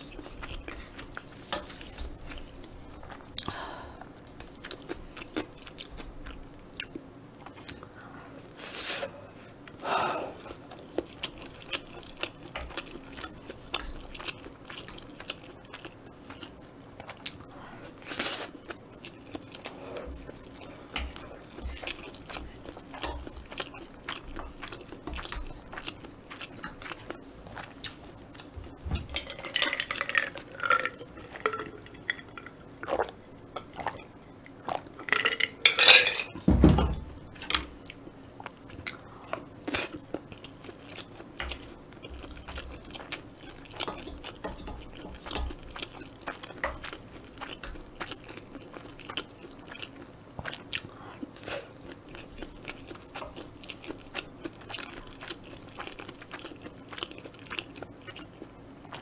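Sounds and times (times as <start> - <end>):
close chewing with wet mouth clicks: 18.6 - 28.6, 37.8 - 59.0.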